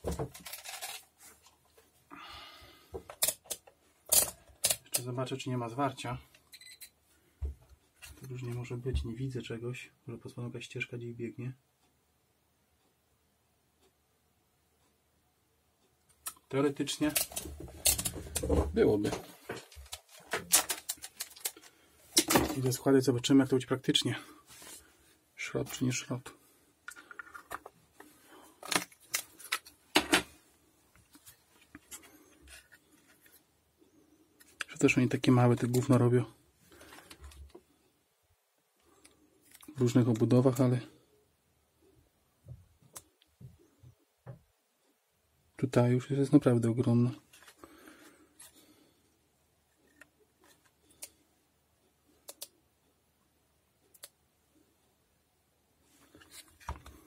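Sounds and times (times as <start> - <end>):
hands handling circuit board: 0.0 - 1.8, 3.0 - 5.1, 16.8 - 22.8, 26.8 - 33.5, 34.4 - 36.1, 36.7 - 37.6, 56.0 - 57.0.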